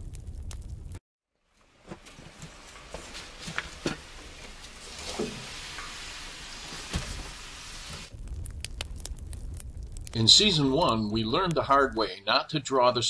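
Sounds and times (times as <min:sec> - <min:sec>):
boiling sap steamy hiss: 0:01.4 - 0:08.2.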